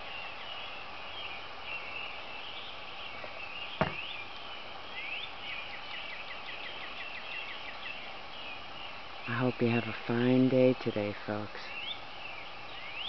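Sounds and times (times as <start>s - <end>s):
rising whistled calls: 0.0s - 9.4s, 10.8s - 13.0s.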